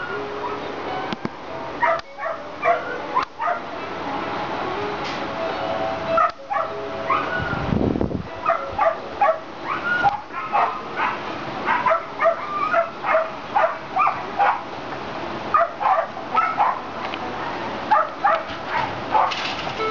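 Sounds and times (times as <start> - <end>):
dogs barking: 0.0 - 0.7, 1.8 - 3.9, 6.2 - 7.7, 8.4 - 14.7, 15.5 - 19.6.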